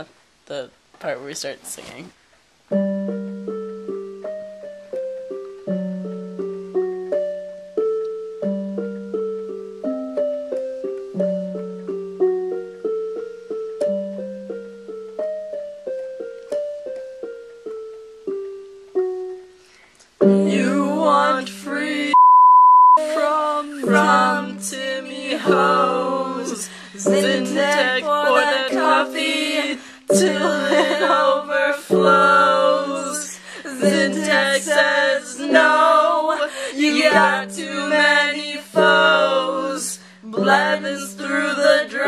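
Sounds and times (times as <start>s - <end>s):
piano broken chords: 2.7s - 19.4s, 23.0s - 42.0s
women singing: 20.2s - 22.2s, 23.0s - 42.0s
censor beep: 22.1s - 23.0s.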